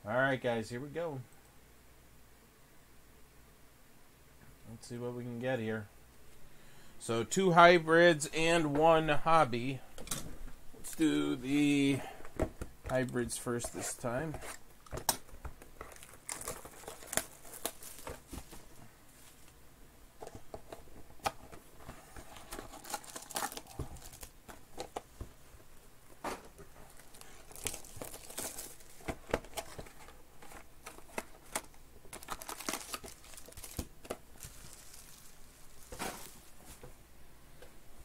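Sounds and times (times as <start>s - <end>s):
plastic wrapping crinkling and tearing: 14.8s - 19.6s, 22.0s - 25.0s, 26.8s - 36.8s
foil packs rustling: 15.7s - 19.6s, 21.4s - 25.1s, 26.2s - 37.0s.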